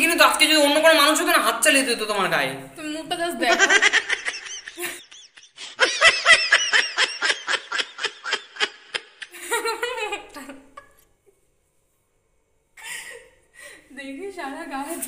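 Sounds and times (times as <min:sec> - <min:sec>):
woman laughing: 0:03.4 - 0:11.0.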